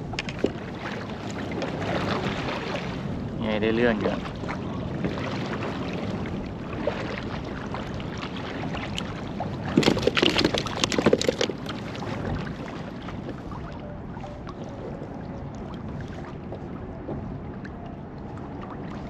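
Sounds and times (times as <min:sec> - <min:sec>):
water lapping around kayak: 0:00.0 - 0:19.0
wind on microphone: 0:00.0 - 0:19.0.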